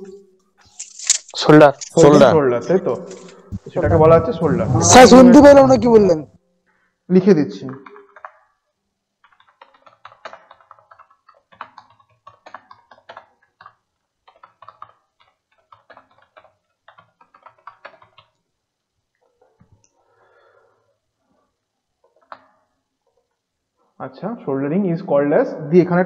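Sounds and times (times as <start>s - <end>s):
computer keyboard typing: 7.7s - 18.5s, 22.0s - 23.3s.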